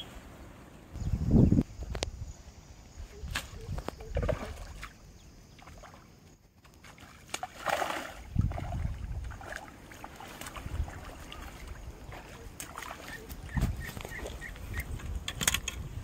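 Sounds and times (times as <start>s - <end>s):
fish thrashing and splashing: 6.9s - 14.4s.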